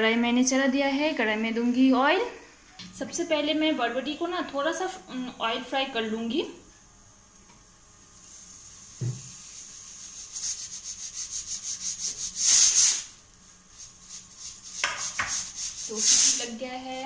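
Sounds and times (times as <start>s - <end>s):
pressure cooker hissing: 7.8s - 17.0s
knock: 9.0s - 9.3s.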